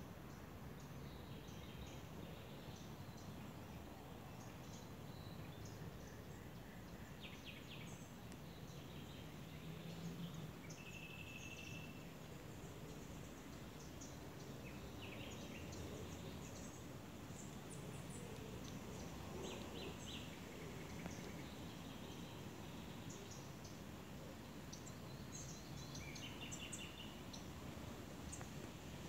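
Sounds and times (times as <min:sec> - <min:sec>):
low background noise: 0:00.0 - 0:29.0
small birds chirping: 0:00.3 - 0:29.0.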